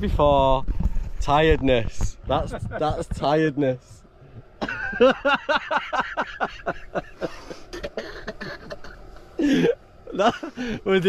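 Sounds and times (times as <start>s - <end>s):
man laughing hard: 4.6s - 10.8s.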